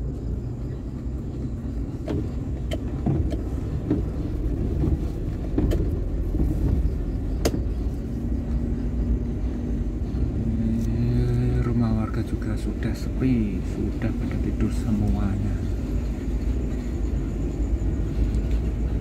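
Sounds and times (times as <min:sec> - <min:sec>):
car engine and tyre rumble: 0:00.0 - 0:19.0
sharp clicks and knocks: 0:01.9 - 0:06.8, 0:07.4 - 0:07.7.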